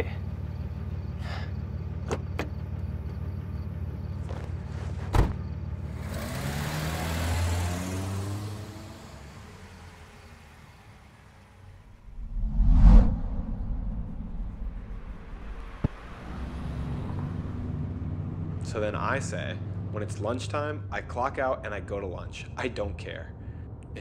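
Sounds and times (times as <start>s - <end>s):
car engine idling: 0.0s - 6.0s
car pulling away: 0.2s - 12.0s, 14.6s - 20.6s
car door slamming: 5.1s - 5.4s.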